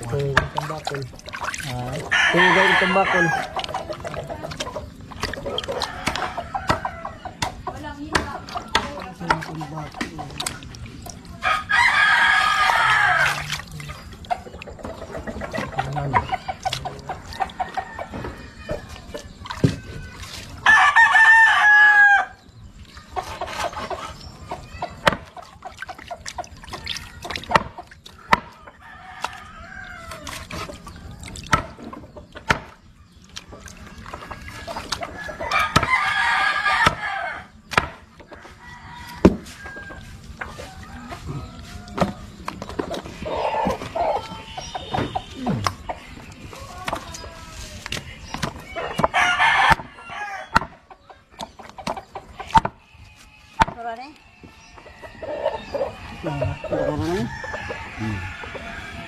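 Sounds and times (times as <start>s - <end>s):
rooster crowing: 2.1s - 3.5s, 11.4s - 13.4s, 20.6s - 22.4s, 38.4s - 42.3s, 48.8s - 50.6s, 54.8s - 59.0s.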